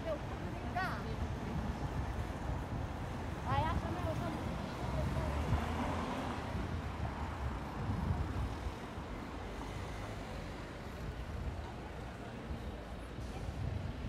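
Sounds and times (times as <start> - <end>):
city street low rumble: 0.0 - 14.0.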